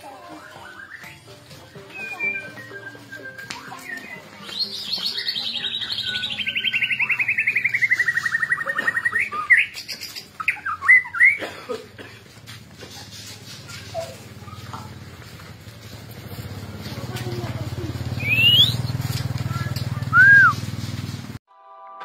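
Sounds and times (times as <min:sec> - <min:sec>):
bird singing trills and whistles: 0:00.3 - 0:11.4, 0:18.1 - 0:19.0, 0:20.1 - 0:20.7.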